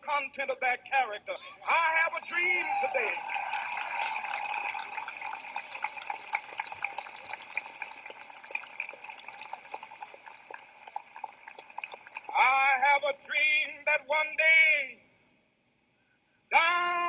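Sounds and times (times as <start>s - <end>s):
crowd applauding and cheering: 1.6s - 12.8s.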